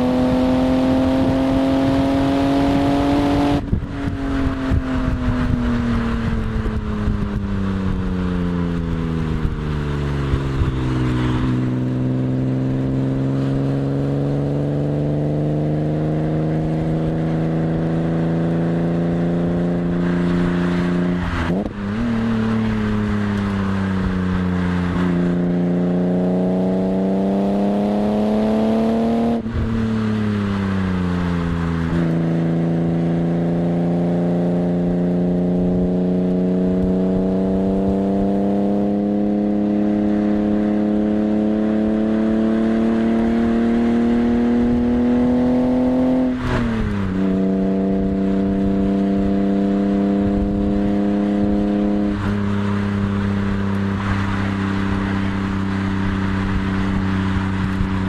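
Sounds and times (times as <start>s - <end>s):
car engine revving hard: 0.0s - 3.8s, 24.6s - 30.0s, 31.2s - 58.0s
wind and tyre noise: 0.0s - 58.0s.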